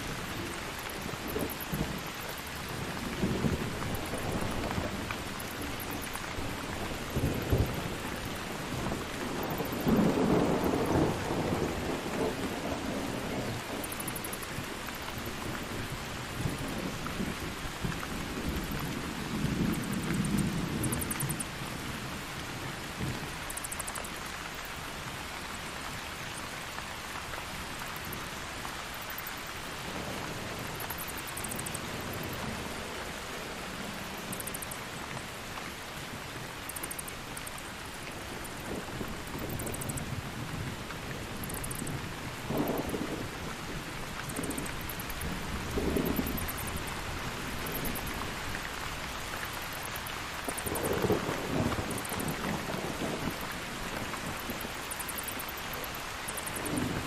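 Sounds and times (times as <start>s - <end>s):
heavy rain: 0.0s - 57.0s
thunder rumbling: 38.5s - 48.4s, 50.5s - 57.0s.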